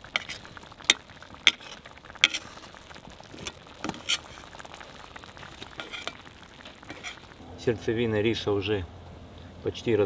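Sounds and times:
metal skimmer scraping pot: 0:00.0 - 0:04.6, 0:05.3 - 0:07.4
water sizzling under rice: 0:00.0 - 0:07.5.

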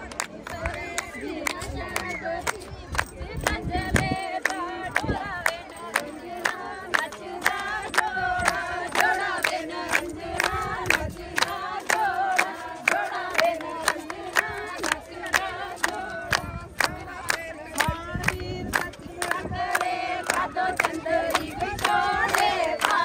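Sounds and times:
rhythmic hand clapping: 0:00.0 - 0:23.0
group of people singing: 0:00.3 - 0:23.0.

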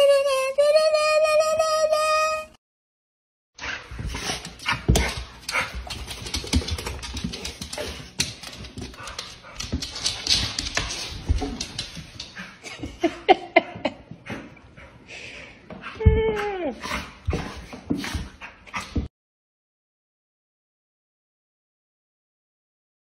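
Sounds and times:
dog scuffing on hard floor: 0:03.6 - 0:12.7, 0:16.8 - 0:19.1.

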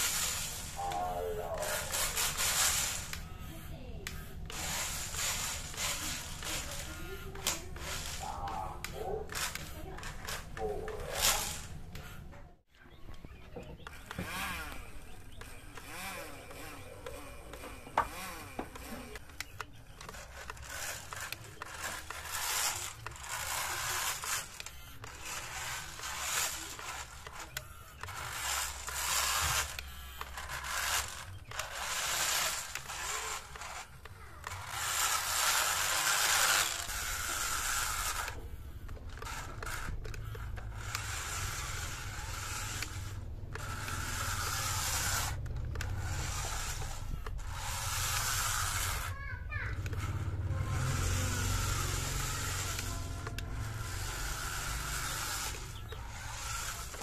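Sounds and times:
toy car motor whine: 0:00.0 - 0:57.0.

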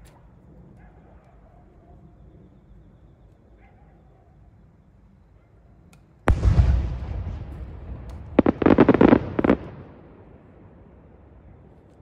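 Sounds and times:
firework shell booming: 0:06.3 - 0:10.5
sharp firework cracks: 0:06.3 - 0:10.6.

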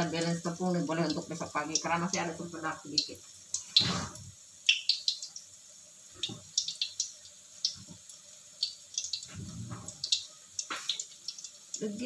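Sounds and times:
oil crackling and spitting: 0:03.4 - 0:11.8.

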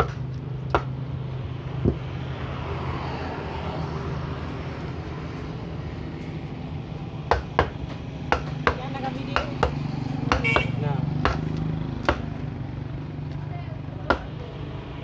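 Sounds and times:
knife chopping on wooden block: 0:00.0 - 0:00.9, 0:07.3 - 0:12.3, 0:14.1 - 0:14.4.

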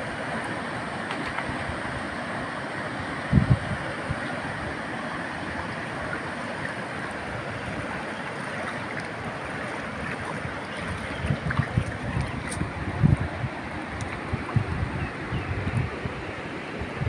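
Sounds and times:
river water rushing: 0:00.0 - 0:17.0
wind buffeting microphone: 0:03.3 - 0:04.2, 0:09.7 - 0:17.0.

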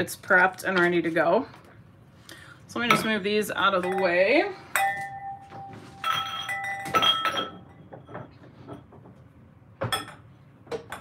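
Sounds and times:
wine glasses clinking: 0:03.8 - 0:08.2.

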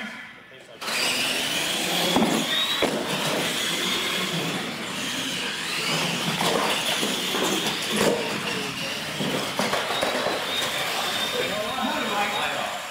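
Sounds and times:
electric motors whining: 0:00.8 - 0:12.9
tyres rushing on concrete: 0:00.8 - 0:12.9.

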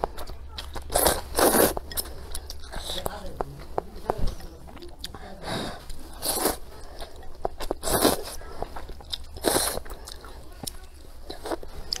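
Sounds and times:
chewing: 0:00.0 - 0:12.0
person slurping noodles: 0:00.9 - 0:02.1, 0:05.4 - 0:07.1, 0:07.7 - 0:08.6, 0:09.4 - 0:10.1.

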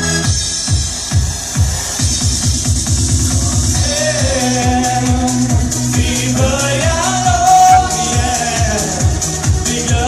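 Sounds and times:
electronic dance music: 0:07.2 - 0:08.2.

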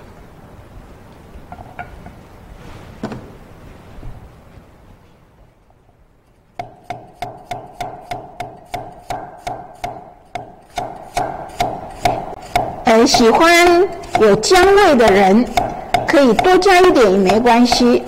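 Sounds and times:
knife chopping on wooden board: 0:06.6 - 0:18.0.

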